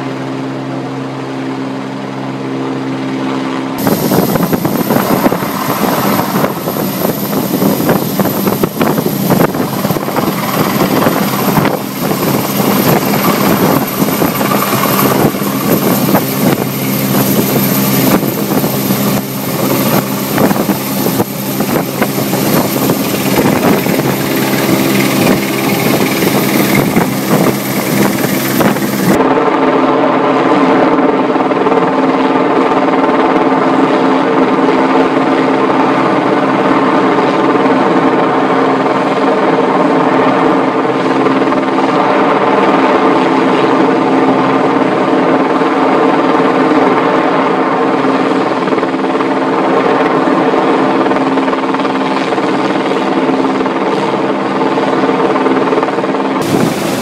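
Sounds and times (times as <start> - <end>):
helicopter rotor and engine drone: 0.0 - 57.0
harsh rushing noise: 3.8 - 29.3, 56.4 - 57.0.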